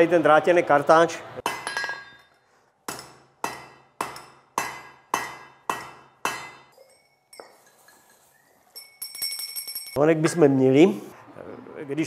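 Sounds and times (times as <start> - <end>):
hammer blows ringing on hot metal: 2.9 - 6.7.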